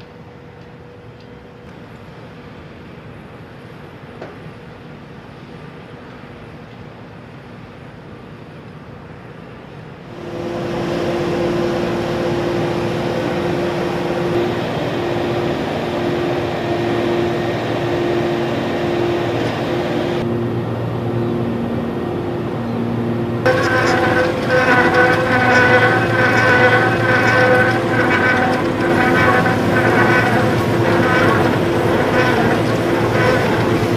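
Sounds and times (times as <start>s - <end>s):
diesel machinery engine drone: 9.1s - 33.9s.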